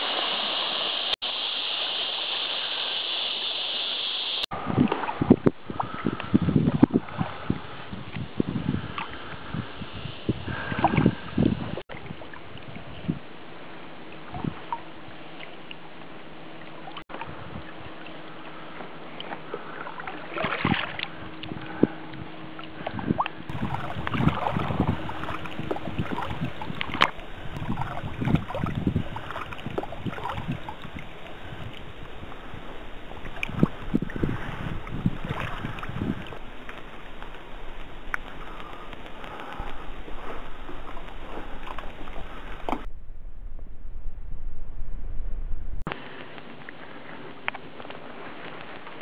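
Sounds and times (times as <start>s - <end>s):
paddle blades dipping in water: 4.7s - 6.3s, 13.7s - 42.9s, 45.9s - 49.0s
splashing: 18.8s - 22.0s, 22.6s - 42.9s
water dripping: 23.5s - 42.9s.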